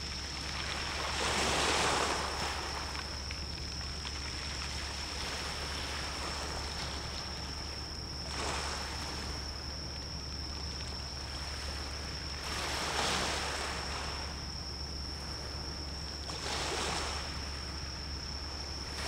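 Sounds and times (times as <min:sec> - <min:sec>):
sea waves washing: 0:00.0 - 0:09.6.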